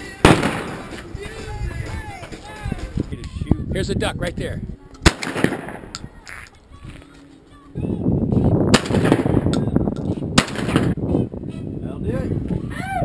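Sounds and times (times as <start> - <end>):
shotgun firing: 0.2 - 1.0, 5.0 - 6.0, 8.7 - 9.6, 10.4 - 11.0.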